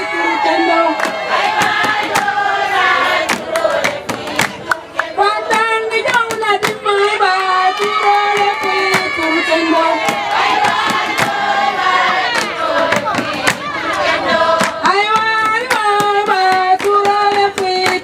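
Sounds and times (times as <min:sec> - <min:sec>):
women singing together: 0:00.0 - 0:18.0
sharp percussive knocks: 0:01.5 - 0:02.4, 0:03.3 - 0:06.9, 0:10.0 - 0:18.0.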